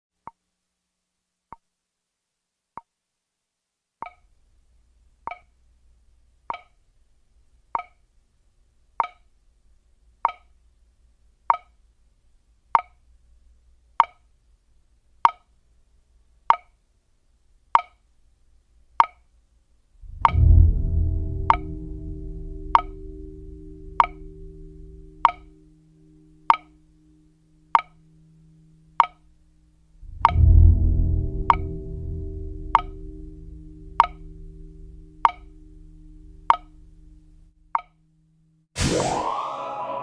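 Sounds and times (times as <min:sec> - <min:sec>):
clock ticking: 0:04.0 - 0:04.4, 0:05.2 - 0:05.6, 0:06.3 - 0:06.9, 0:07.6 - 0:08.1, 0:08.9 - 0:09.4, 0:10.2 - 0:10.6, 0:11.4 - 0:11.9, 0:12.7 - 0:13.1, 0:13.9 - 0:14.3, 0:15.2 - 0:15.5, 0:16.4 - 0:16.8, 0:17.7 - 0:18.0, 0:18.9 - 0:19.3, 0:20.0 - 0:38.0
deep musical swell: 0:20.0 - 0:37.6, 0:38.8 - 0:40.0.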